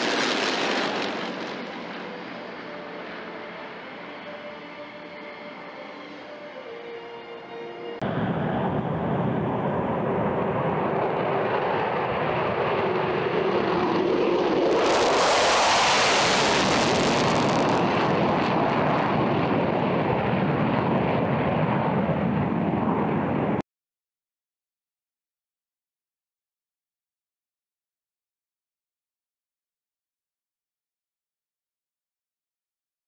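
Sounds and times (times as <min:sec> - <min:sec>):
jet engines roaring: 0:00.0 - 0:23.6.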